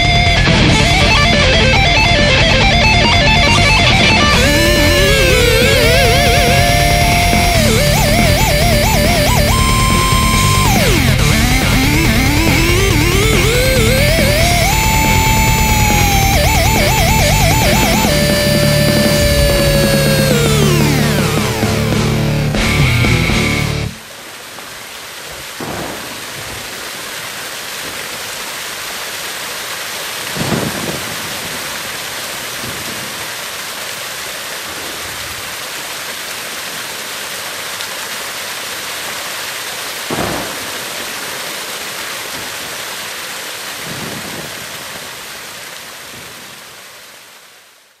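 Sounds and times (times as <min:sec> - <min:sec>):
thunder rumbling: 0:00.0 - 0:23.4, 0:25.6 - 0:27.0, 0:30.4 - 0:33.3, 0:40.1 - 0:41.1
heavy metal music: 0:00.0 - 0:24.0
steady rain: 0:00.0 - 0:48.0.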